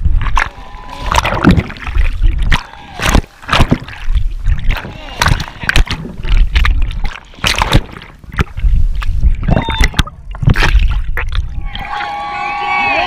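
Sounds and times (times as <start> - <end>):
river water splashing and gurgling: 0.0 - 13.0
sharp splashes: 0.1 - 12.3.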